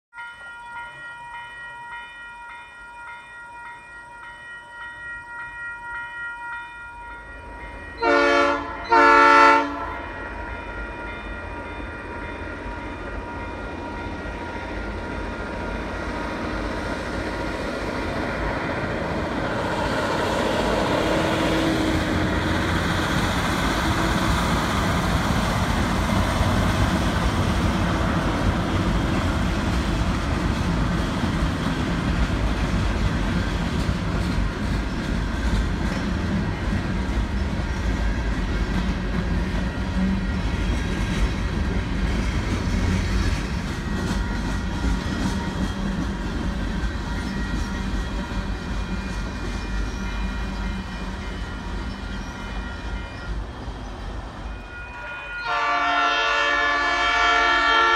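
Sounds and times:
railway crossing bell ringing: 0.1 - 57.9
freight train rumble and wheel noise: 0.2 - 57.9
locomotive horn blasts: 8.0 - 10.2, 54.6 - 57.9.

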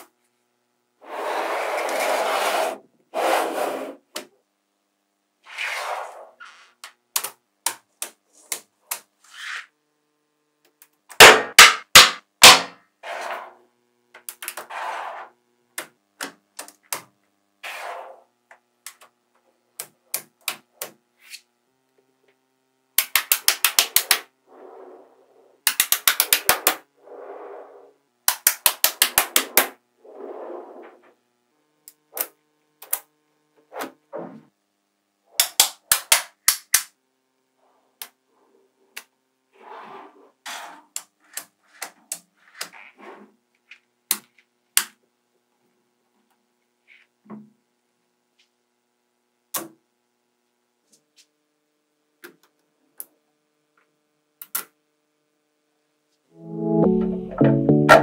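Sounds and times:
magnetic balls clicking together: 23.0 - 24.3, 25.6 - 26.8, 28.2 - 29.7.

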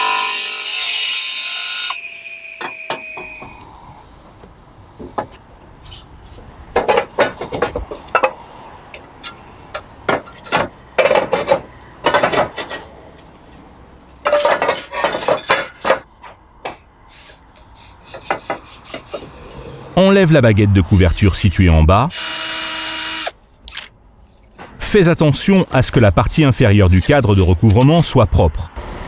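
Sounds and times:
roof tiles clinking: 14.2 - 16.1.

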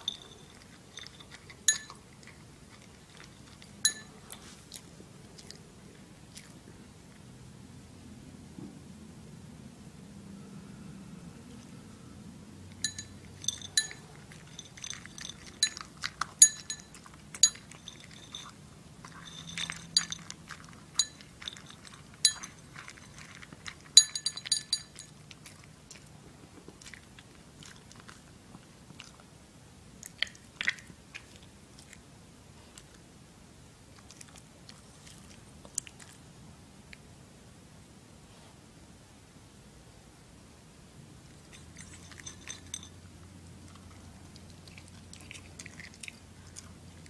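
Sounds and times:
clinks of dog bowl: 0.0 - 2.3, 3.2 - 4.2, 12.8 - 25.2, 41.5 - 43.0
dog crunching food: 0.0 - 6.6, 12.7 - 29.3, 30.0 - 32.1, 33.9 - 36.3, 41.4 - 42.9, 43.5 - 47.0.

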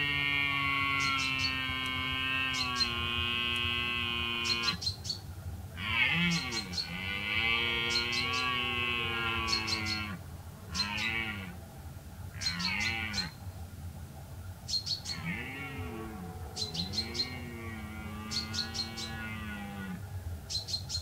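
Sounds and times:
red deer stag roaring: 5.8 - 10.2, 15.1 - 20.0.

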